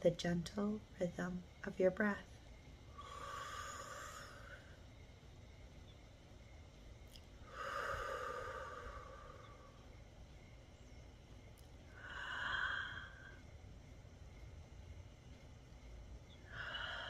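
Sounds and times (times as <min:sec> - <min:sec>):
person breathing slowly: 0:02.9 - 0:04.9, 0:07.4 - 0:10.0, 0:11.8 - 0:13.7, 0:16.4 - 0:17.0.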